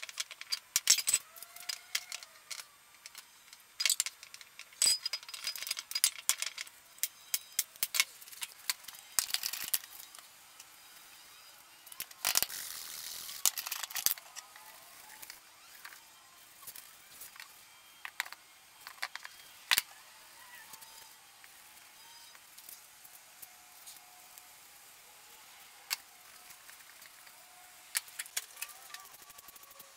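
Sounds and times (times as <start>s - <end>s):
metal bowls clinking and rattling: 3.8s - 6.7s.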